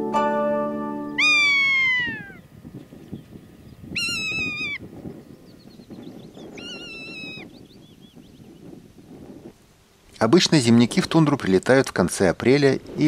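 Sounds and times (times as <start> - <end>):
buzzard mewing cry: 1.2 - 2.5, 4.0 - 4.8.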